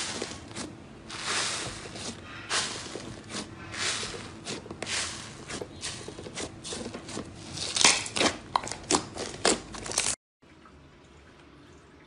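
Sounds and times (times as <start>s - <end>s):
slime squeezed crackling and popping: 7.6s - 10.2s.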